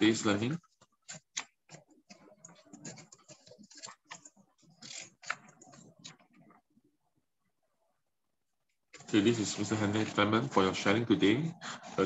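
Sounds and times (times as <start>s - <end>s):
book pages flipping: 0.4s - 6.7s, 8.9s - 10.8s.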